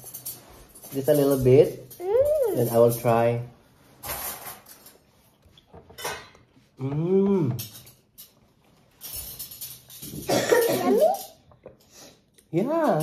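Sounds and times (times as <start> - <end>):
dishes and cutlery clinking: 0.0 - 13.0
person humming mmm: 2.0 - 2.7, 6.8 - 7.7.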